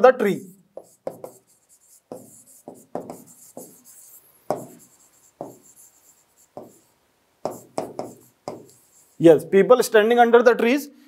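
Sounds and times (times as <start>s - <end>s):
pen tapping on touchscreen: 0.8s - 1.5s, 2.1s - 5.9s, 6.5s - 6.8s, 7.4s - 8.9s.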